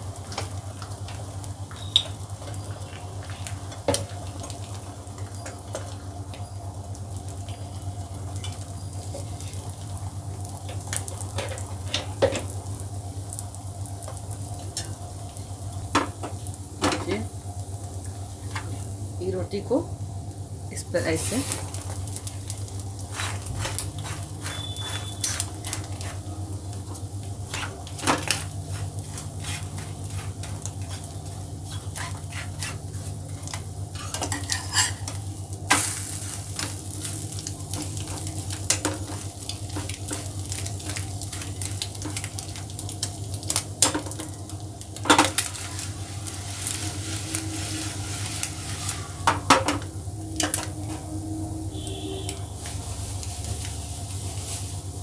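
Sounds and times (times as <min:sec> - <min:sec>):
food sizzling in a pan: 0:00.0 - 0:51.0, 0:51.6 - 0:55.0
metal spoon scraping a pan: 0:27.5 - 0:35.2.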